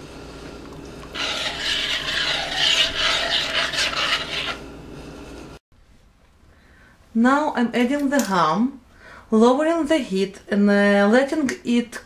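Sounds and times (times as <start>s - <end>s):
metal spoon scraping pot: 1.1s - 4.6s.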